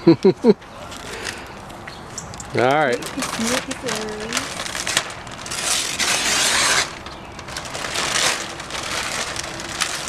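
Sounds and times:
paper crinkling: 2.6 - 10.0
wrapping paper ripping: 2.8 - 10.0.

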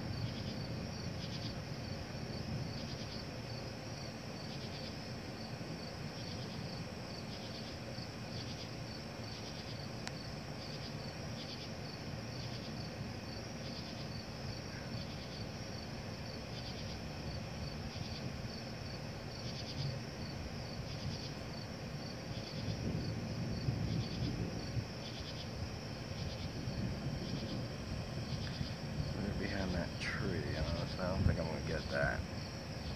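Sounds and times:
night insects chirping: 0.0 - 32.9
low rumbling background: 17.1 - 32.9.

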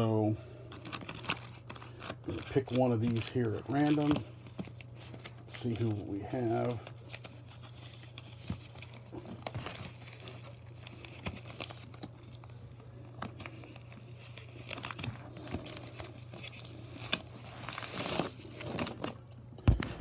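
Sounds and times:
steady low hum: 0.0 - 20.0
envelopes rustling and crinkling: 0.6 - 20.0.

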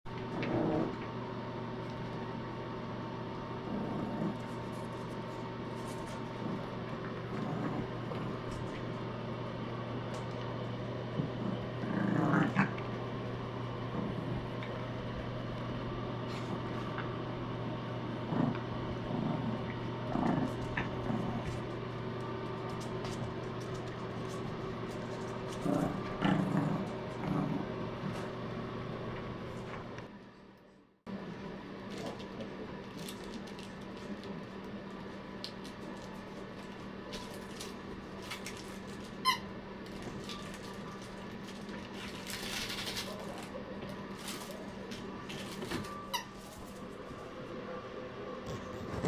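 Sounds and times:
steady low hum: 0.1 - 49.0
puppies growling and yipping: 11.2 - 13.1, 17.7 - 22.1.

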